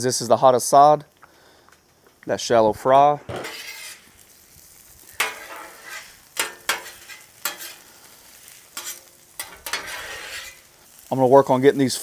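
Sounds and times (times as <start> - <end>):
oil sizzling: 0.0 - 12.0
metal spatula scraping griddle: 3.2 - 4.4, 5.1 - 11.1.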